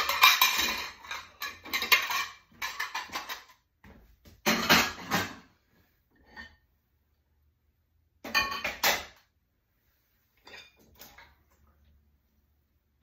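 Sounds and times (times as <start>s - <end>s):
metal cutlery clattering: 0.0s - 3.6s, 4.5s - 5.4s.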